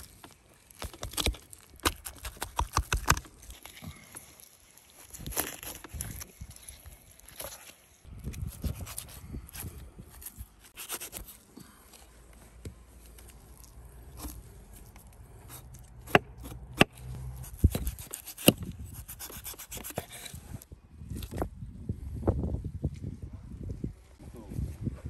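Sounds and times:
knife cutting and scraping meat: 4.4s - 11.5s, 13.0s - 20.7s.

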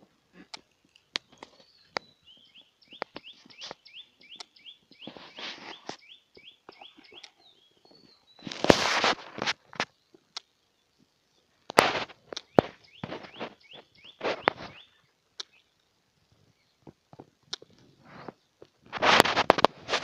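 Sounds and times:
bird chirping: 0.5s - 8.7s, 12.2s - 18.6s
footsteps on gravel: 8.4s - 9.9s.

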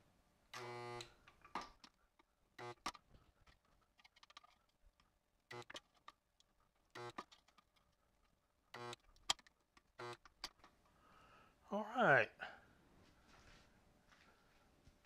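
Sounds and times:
spot welder buzzing: 0.5s - 1.2s, 2.6s - 2.9s, 5.5s - 5.8s, 6.9s - 7.4s, 8.7s - 9.3s, 9.9s - 10.5s.

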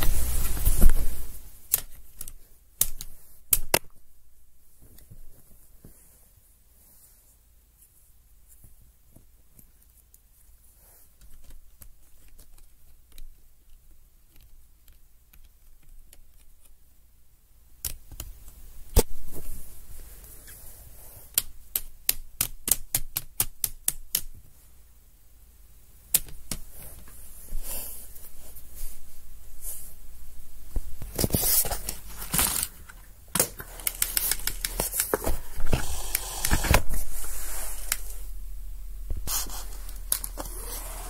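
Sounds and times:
sharp plastic clicks: 1.7s - 3.9s, 21.3s - 24.4s.

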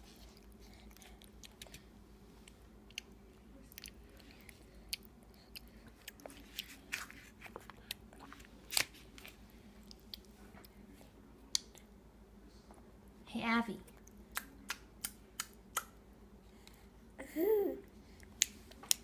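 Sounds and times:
baby chewing with mouth smacks: 0.1s - 11.9s.

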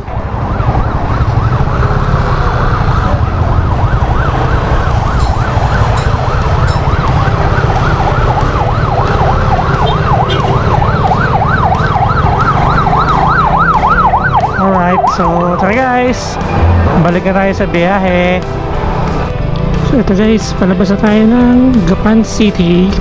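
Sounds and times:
siren yelping: 0.0s - 17.0s.

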